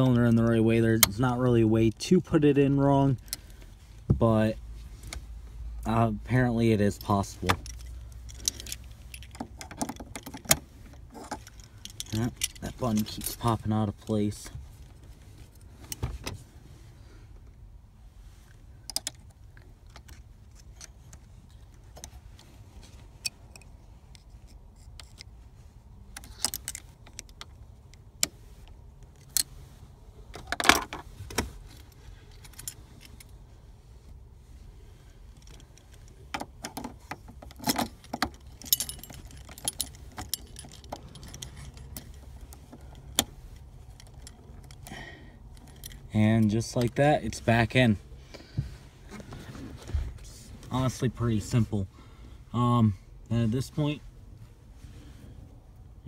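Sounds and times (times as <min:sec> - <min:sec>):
keys jangling on key ring: 0:38.4 - 0:42.2.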